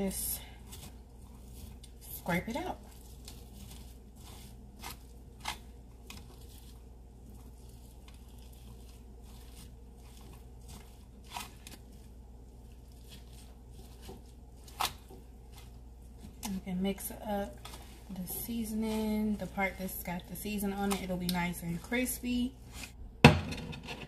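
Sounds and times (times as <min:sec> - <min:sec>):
fork scraping squash: 0:00.0 - 0:16.6
steady low hum: 0:00.0 - 0:23.5.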